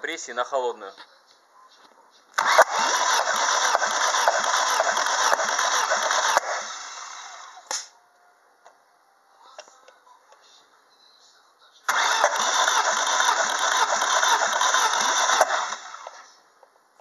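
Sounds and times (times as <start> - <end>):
engine cranked by starter: 2.4 - 7.6, 11.9 - 16.3.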